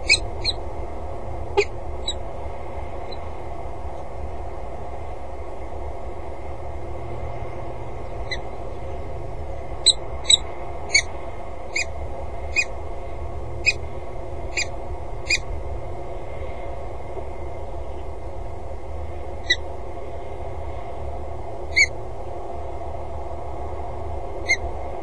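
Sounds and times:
bird calling sharply: 0.0 - 0.6, 11.7 - 11.9
steady low hum: 0.0 - 25.0.

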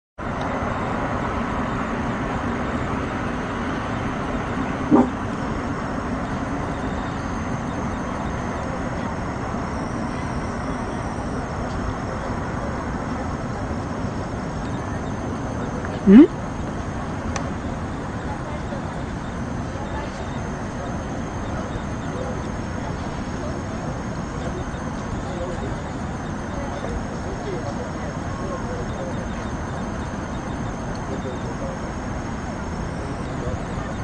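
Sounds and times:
city traffic hum: 0.2 - 34.0
short pitched sound: 4.9 - 5.2, 16.0 - 16.3.

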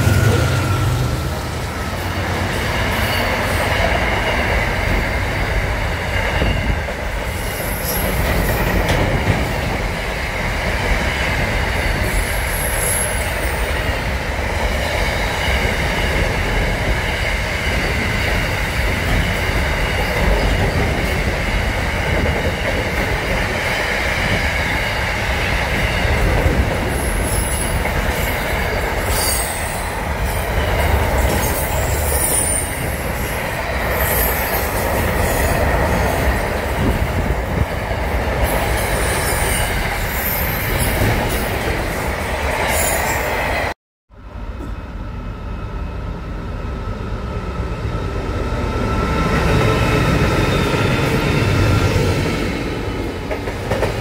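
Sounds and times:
steel wheels rolling on rail: 0.0 - 43.7, 46.9 - 54.0.

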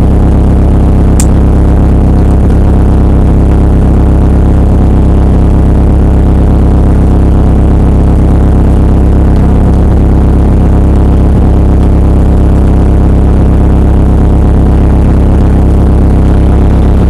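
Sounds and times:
car engine idling: 0.0 - 17.0.

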